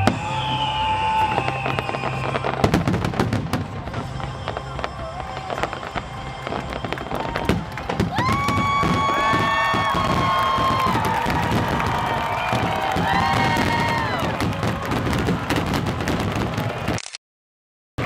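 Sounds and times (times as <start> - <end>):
fireworks bangs and crackles: 0.0 - 17.0
long high tone: 3.6 - 9.9.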